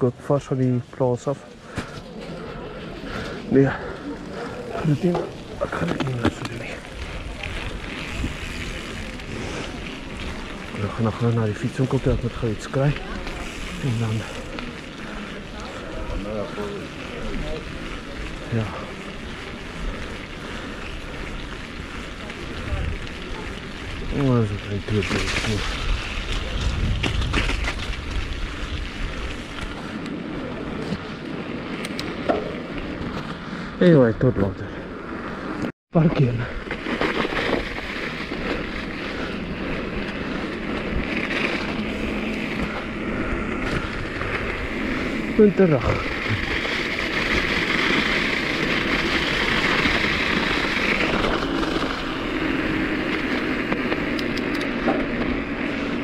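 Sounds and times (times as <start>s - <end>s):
wind rumbling on microphone: 1.8s - 35.7s, 36.3s - 56.0s
wind rush on microphone: 6.8s - 9.9s, 23.8s - 33.1s.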